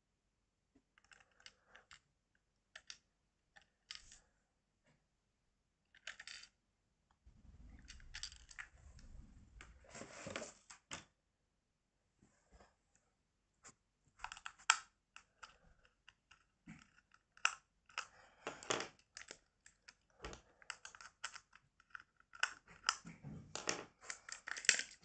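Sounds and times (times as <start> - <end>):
plastic toys clicking on wooden floor: 1.0 - 2.0, 2.7 - 3.0, 5.9 - 6.6, 7.8 - 8.8, 14.2 - 25.0
low rumble with clattering: 7.3 - 9.9.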